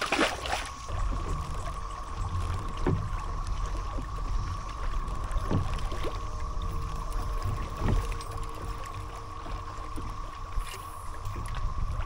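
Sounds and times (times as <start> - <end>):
fish splashing into water: 0.0 - 0.8
cicadas droning: 0.0 - 12.0
water lapping against kayak hull: 0.0 - 12.0.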